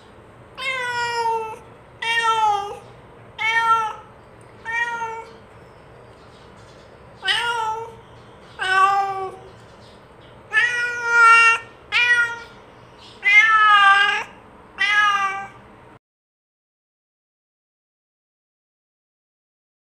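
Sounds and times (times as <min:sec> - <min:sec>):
cat meowing: 0:00.6 - 0:05.4, 0:07.2 - 0:08.0, 0:08.6 - 0:09.5, 0:10.5 - 0:12.6, 0:13.2 - 0:15.6.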